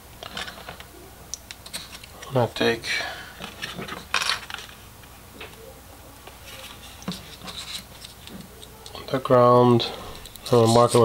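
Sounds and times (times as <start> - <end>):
wire and tubing scratching and rubbing: 6.3 - 9.0, 10.2 - 11.0.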